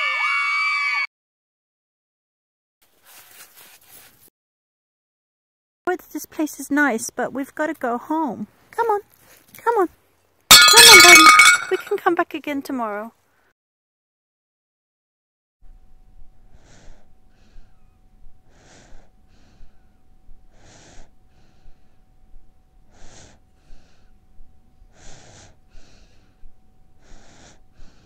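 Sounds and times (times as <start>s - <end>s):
dog breathing loudly in sleep: 16.4s - 28.0s.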